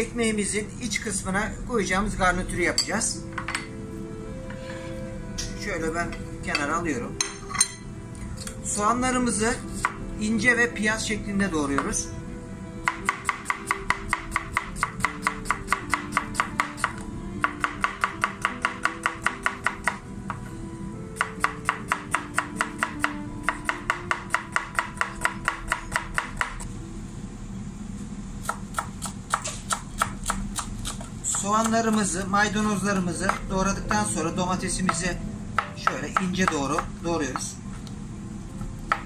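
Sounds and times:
background music: 0:00.0 - 0:27.0, 0:31.3 - 0:37.6
knife chopping herbs: 0:12.8 - 0:20.4, 0:21.2 - 0:26.6, 0:28.4 - 0:34.0, 0:34.8 - 0:37.5.

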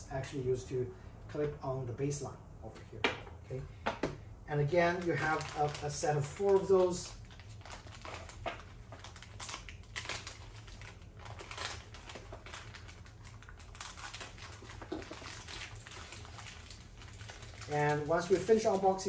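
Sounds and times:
plastic bags crinkling: 0:04.6 - 0:19.0.

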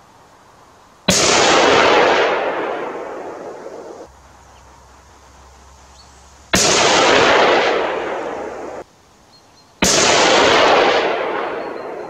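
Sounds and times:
rifle shots with echo: 0:01.1 - 0:04.1, 0:06.6 - 0:08.8, 0:09.8 - 0:12.0.

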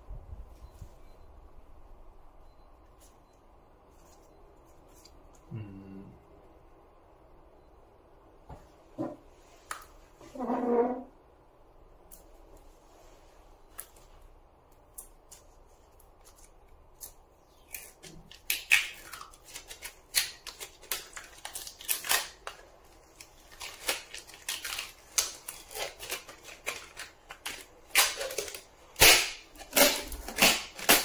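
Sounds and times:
sticker peeling crackling: 0:14.8 - 0:31.0.

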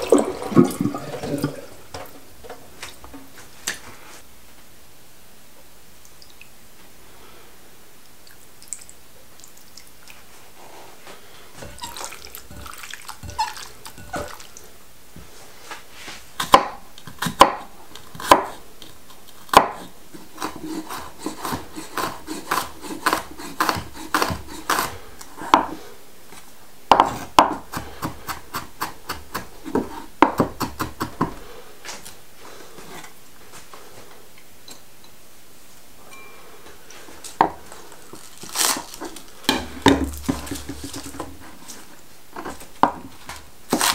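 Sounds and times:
knife chopping on wooden board: 0:16.4 - 0:18.6, 0:19.5 - 0:25.8, 0:26.9 - 0:31.4
handling and rustling: 0:36.0 - 0:43.9.

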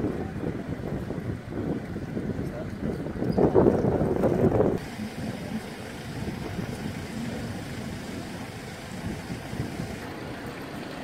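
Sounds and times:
bus engine idling: 0:04.8 - 0:11.0.

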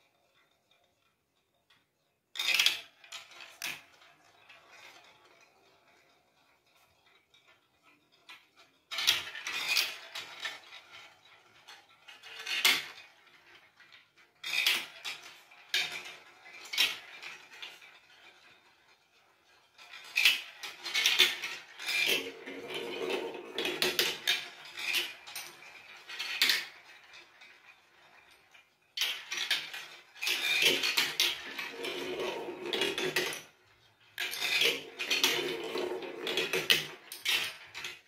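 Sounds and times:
plastic balls rolling and clacking: 0:00.0 - 0:38.0.

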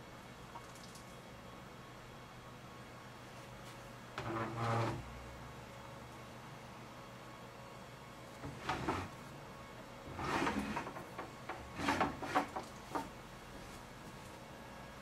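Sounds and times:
globe rubbing in wooden stand: 0:04.2 - 0:05.1, 0:08.4 - 0:09.2, 0:10.1 - 0:13.1.

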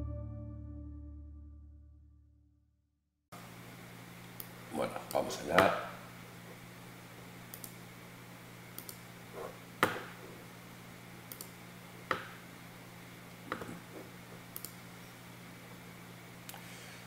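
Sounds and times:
faint electrical hum: 0:03.4 - 0:17.0
computer mouse clicks: 0:07.5 - 0:07.8, 0:08.8 - 0:09.0, 0:11.3 - 0:12.2, 0:14.5 - 0:14.8.

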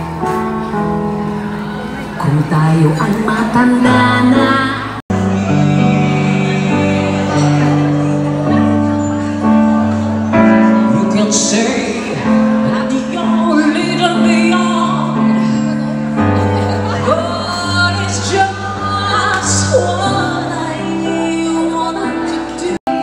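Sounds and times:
amplified keyboard: 0:00.0 - 0:23.0
woman singing into microphone: 0:02.2 - 0:08.7, 0:10.8 - 0:16.0, 0:16.7 - 0:23.0.

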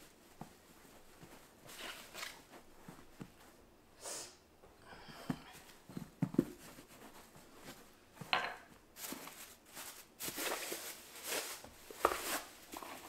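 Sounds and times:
plastic bag crinkling: 0:09.0 - 0:13.0.

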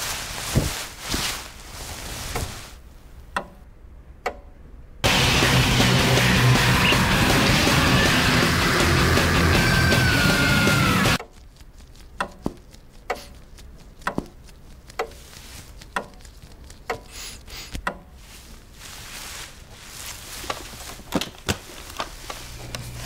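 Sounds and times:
low steady background noise: 0:00.0 - 0:05.1.

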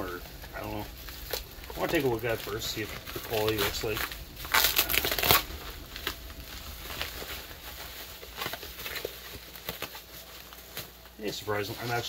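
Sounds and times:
bubble wrap and plastic crinkling: 0:00.0 - 0:12.0.

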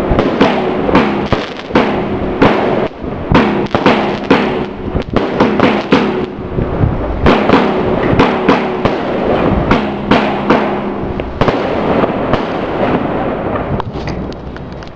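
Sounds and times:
fireworks banging with echoes: 0:00.0 - 0:14.9.

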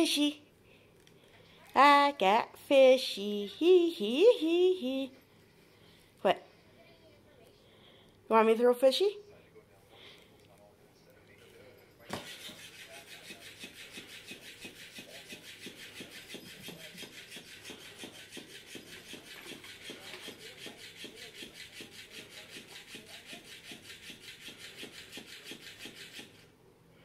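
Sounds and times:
cat toy flapping on carpet: 0:12.1 - 0:26.4.

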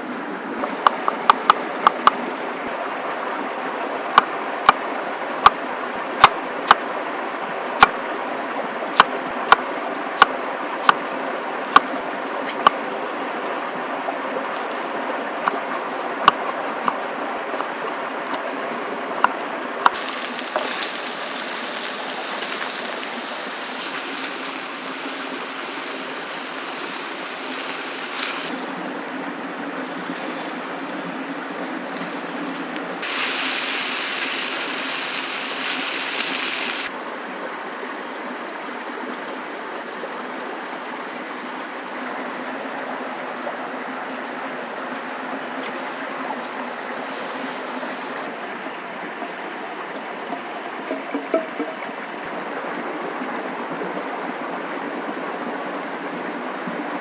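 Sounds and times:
vegetables sizzling in frying pan: 0:20.0 - 0:28.5, 0:32.1 - 0:36.9.

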